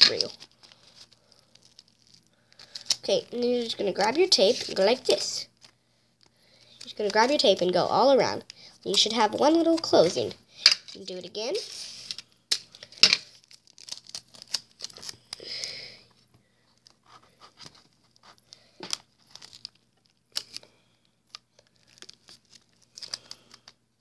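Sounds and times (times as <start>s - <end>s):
paper crinkling: 0.0s - 7.9s, 11.0s - 15.7s, 16.7s - 20.7s, 21.3s - 23.8s.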